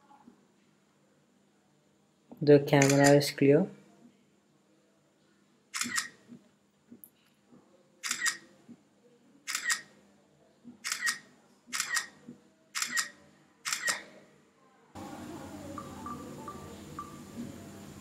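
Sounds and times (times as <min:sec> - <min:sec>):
camera shutter double click: 0:02.8 - 0:03.1, 0:05.8 - 0:06.2, 0:08.0 - 0:08.4, 0:09.5 - 0:09.9, 0:10.8 - 0:12.1, 0:12.8 - 0:14.0.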